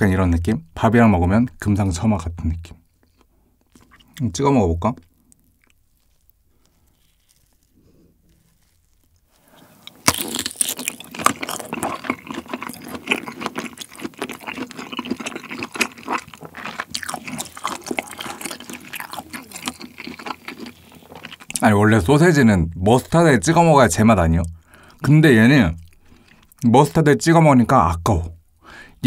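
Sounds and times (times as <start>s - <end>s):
chewing with clicks and smacks: 3.0s - 4.3s, 4.9s - 21.8s, 24.3s - 26.8s.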